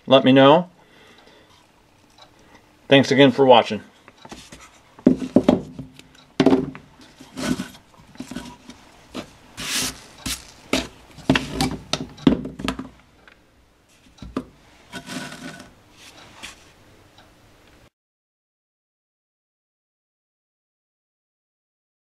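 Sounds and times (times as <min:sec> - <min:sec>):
objects scraping and knocking on table: 0:04.3 - 0:12.9, 0:13.9 - 0:16.7.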